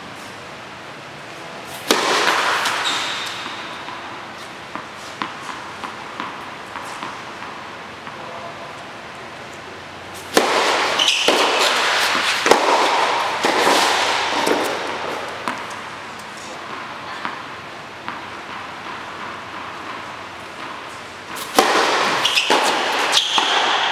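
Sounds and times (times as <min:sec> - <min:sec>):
racket striking ball: 0:01.7 - 0:08.2, 0:10.2 - 0:16.0, 0:16.6 - 0:23.9
tennis ball bouncing: 0:01.8 - 0:08.3, 0:10.2 - 0:23.9
shoe squeak: 0:02.7 - 0:03.8, 0:10.8 - 0:12.4, 0:22.1 - 0:23.9
loud rushing noise: 0:10.1 - 0:15.6.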